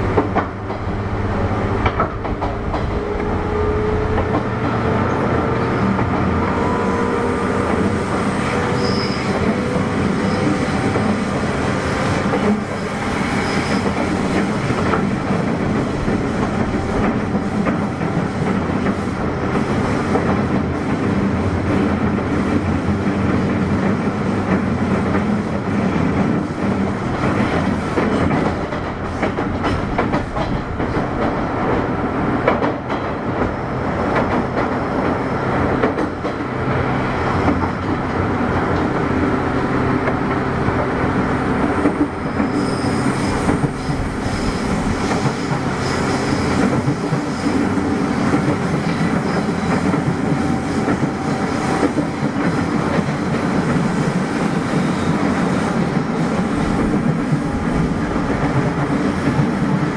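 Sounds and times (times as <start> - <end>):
train wheels clacking over rail joints: 21.7 - 36.5.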